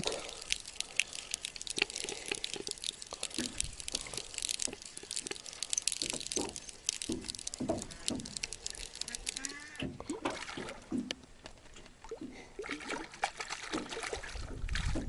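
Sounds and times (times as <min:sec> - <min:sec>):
small irregular clicks: 0:00.0 - 0:10.2
water dripping and splashing: 0:00.0 - 0:15.0.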